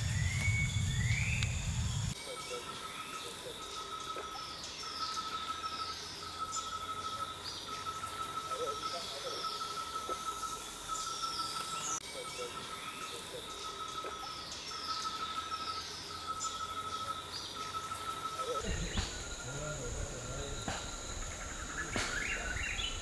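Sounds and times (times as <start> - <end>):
low rumble: 0.0 - 2.2
pulsing high insect note: 0.0 - 23.0
very high insect buzz: 0.0 - 23.0.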